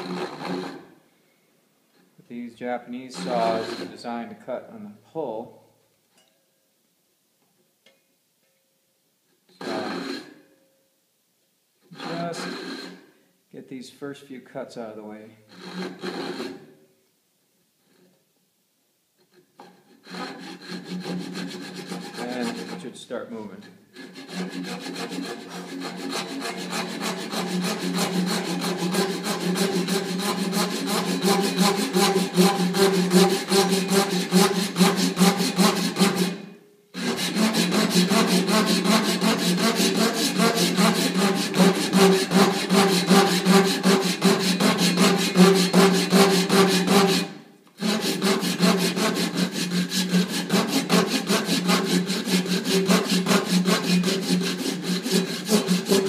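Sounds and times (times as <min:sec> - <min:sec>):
hand saw cutting wood: 0:00.0 - 0:00.9, 0:03.0 - 0:04.0, 0:09.5 - 0:10.3, 0:11.9 - 0:13.0, 0:15.5 - 0:16.7, 0:19.3 - 0:56.0.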